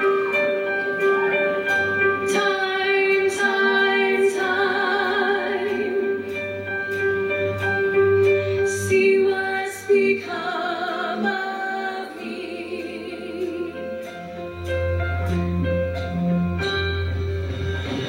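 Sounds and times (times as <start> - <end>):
bass: 0.0 - 10.5, 12.1 - 18.0
choir singing: 0.0 - 15.6
female soloist singing: 2.2 - 6.4, 8.6 - 14.4
steady drum beats: 13.4 - 18.0.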